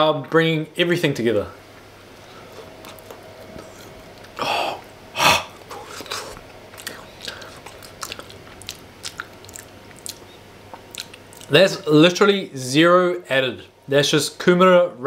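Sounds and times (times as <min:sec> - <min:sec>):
person chewing: 0:02.2 - 0:11.5
wet mouth clicks: 0:05.7 - 0:11.5.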